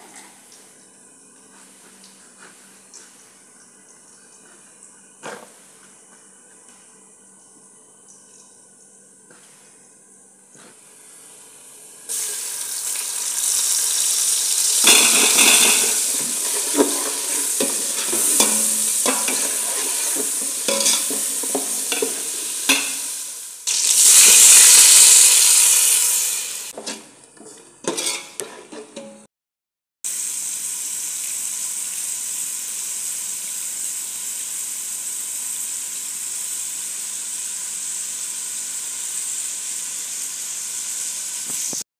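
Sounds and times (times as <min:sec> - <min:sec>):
onions sizzling in hot oil: 0:11.4 - 0:26.8, 0:30.1 - 0:41.8
ladle scraping and clinking pot: 0:14.8 - 0:23.0, 0:26.8 - 0:29.2.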